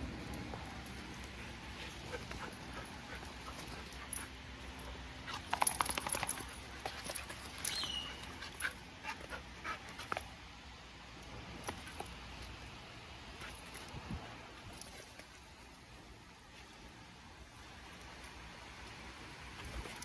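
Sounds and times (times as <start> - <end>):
paws scuffling on artificial turf: 0.0 - 20.0
dogs panting: 0.2 - 10.4.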